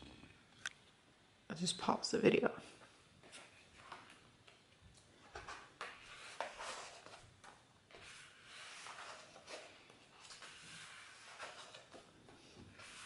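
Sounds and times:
thick pages turning: 5.3 - 12.1, 12.7 - 13.0.

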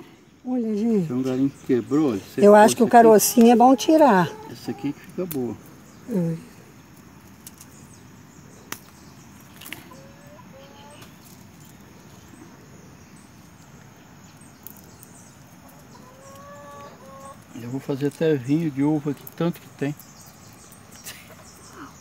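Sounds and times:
branch and leaves snapping: 5.1 - 5.5, 8.7 - 9.9, 14.6 - 15.2
faint short bird calls: 9.7 - 11.2.

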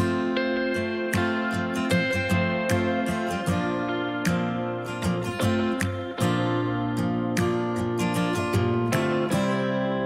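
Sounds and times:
acoustic guitar strumming chords: 0.0 - 10.0.

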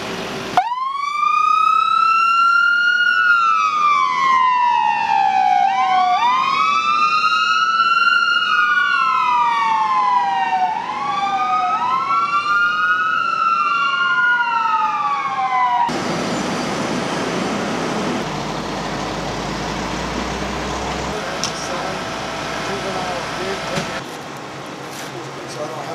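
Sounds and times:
ambulance siren wailing: 0.6 - 16.4.

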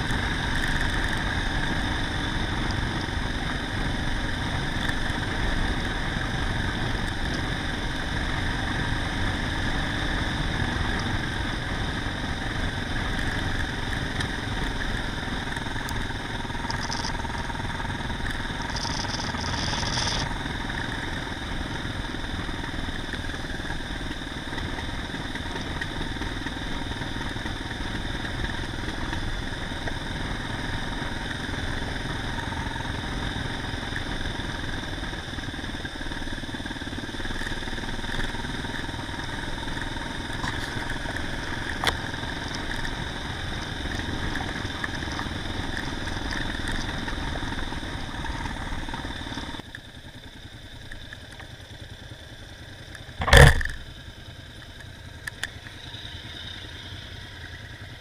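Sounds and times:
gravel road noise: 0.0 - 58.0
motorcycle engine idling: 0.0 - 58.0
motorcycle engine running: 0.0 - 58.0
sharp click: 53.2 - 53.8.

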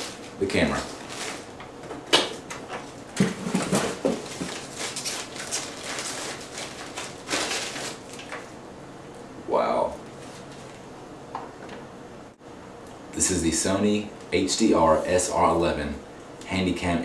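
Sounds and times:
packaging wrap crinkling: 0.0 - 1.7, 2.5 - 8.5.

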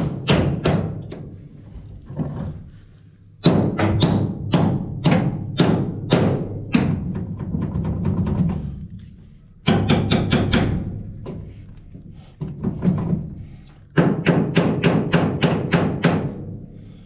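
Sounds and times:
hammer striking steel punch: 3.4 - 6.4.

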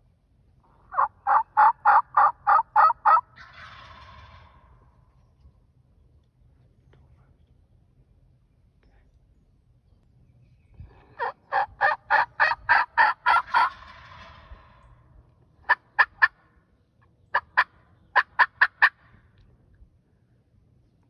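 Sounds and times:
turkey call notes: 0.6 - 4.9, 10.9 - 15.0, 15.6 - 16.6.

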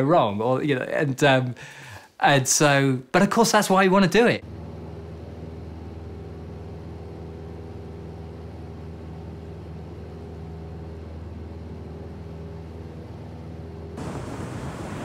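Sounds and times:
steady low hum: 4.4 - 15.0.

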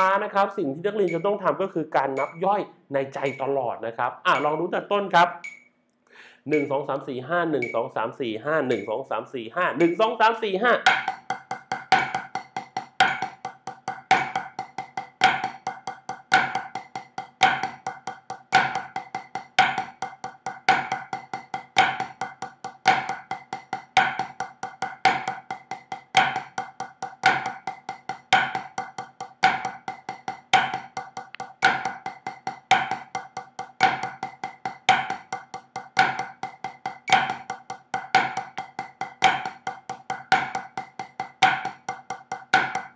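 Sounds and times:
metronome clicking: 1.0 - 1.5, 2.1 - 2.6, 3.2 - 3.5, 4.3 - 4.8, 5.4 - 5.7, 6.5 - 8.0, 8.7 - 9.0, 9.8 - 10.1, 31.2 - 31.6
drumsticks on practice pad: 8.7 - 9.0, 9.8 - 42.9.

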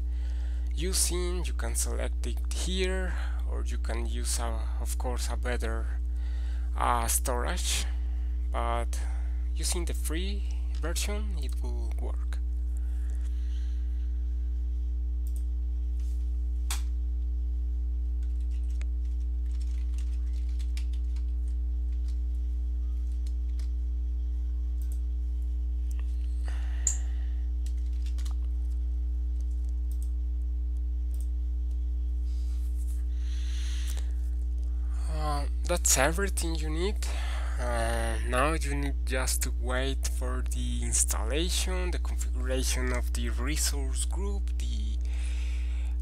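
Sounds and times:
low electrical hum: 0.0 - 46.0
computer keyboard typing: 18.2 - 22.2, 23.0 - 23.7, 27.6 - 28.4.

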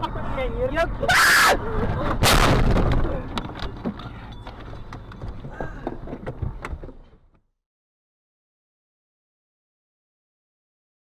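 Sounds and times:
car crash impacts: 2.1 - 3.2
clatter with knocks: 2.7 - 7.4.

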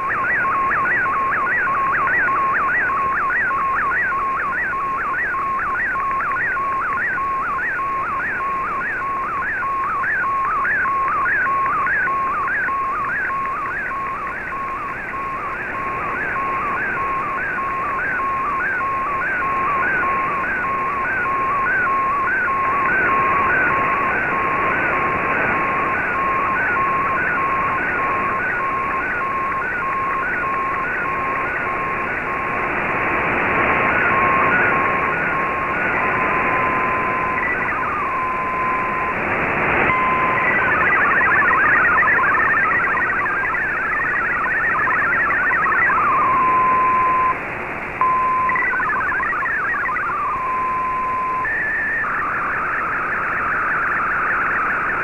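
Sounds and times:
shortwave static: 0.0 - 55.0
steady radio tone: 0.0 - 55.0
warbling chirp: 36.8 - 39.1, 39.9 - 47.4, 48.0 - 55.0.

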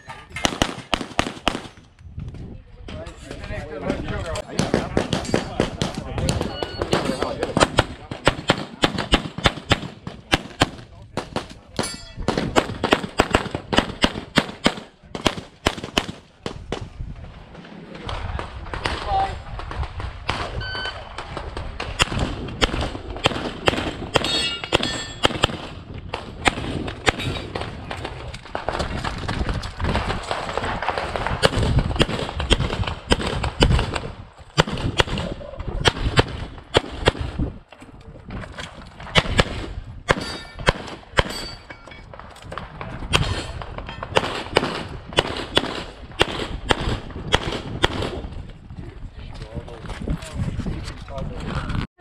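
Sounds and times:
pistol firing quick shots: 21.8 - 27.8, 28.6 - 37.4, 43.1 - 48.3.

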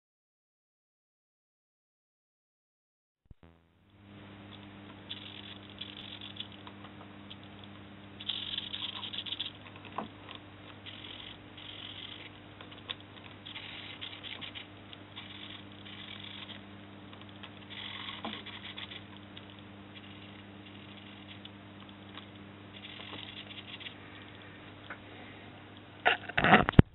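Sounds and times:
steady low hum: 3.4 - 26.9
servo motors buzzing whirs: 10.8 - 12.4, 13.4 - 16.6.

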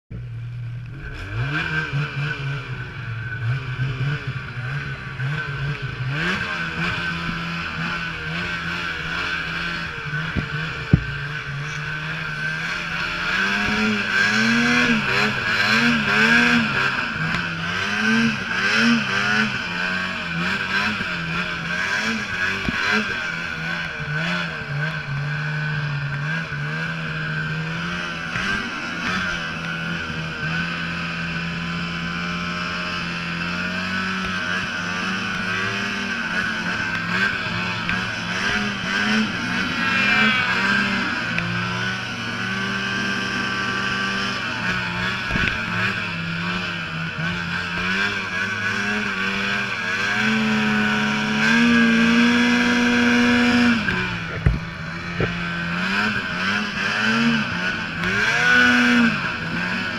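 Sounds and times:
steady high whine: 0.1 - 59.9
snowmobile engine revving: 0.2 - 59.9.

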